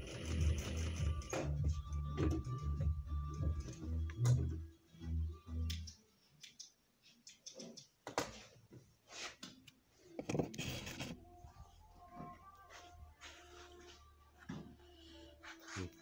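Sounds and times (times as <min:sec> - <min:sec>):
industrial sewing machine running: 0:00.0 - 0:01.2.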